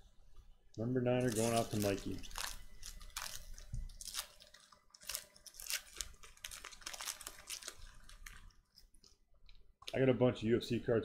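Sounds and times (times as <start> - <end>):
foil wrapper crinkling and tearing: 1.2 - 9.2.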